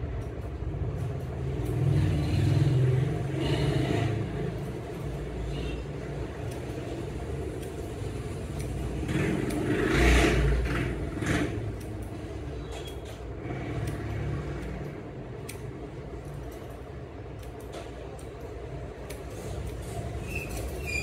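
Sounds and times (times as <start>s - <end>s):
scissors snipping hair: 0.0s - 20.9s
low rumble of road traffic: 0.0s - 21.0s
vehicle passing loudly: 8.9s - 11.8s.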